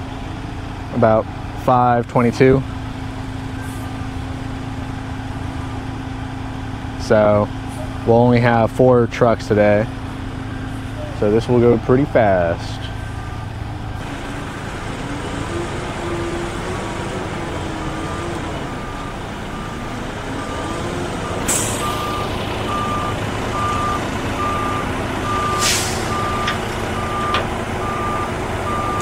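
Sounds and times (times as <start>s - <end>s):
diesel engine running: 0.0s - 29.0s
reversing alarm beeping: 12.6s - 14.5s, 17.6s - 29.0s
air hissing: 25.6s - 26.5s.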